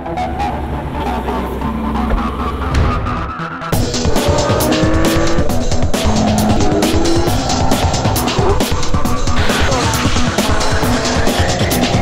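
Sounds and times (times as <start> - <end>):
fast beat background music: 0.2 - 12.0
sports car engine at speed: 3.7 - 12.0.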